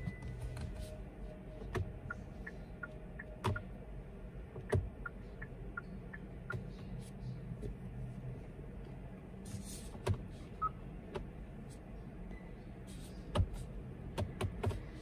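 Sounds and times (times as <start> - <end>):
turn signal ticking: 0.0 - 8.0, 10.0 - 11.4, 13.2 - 15.0.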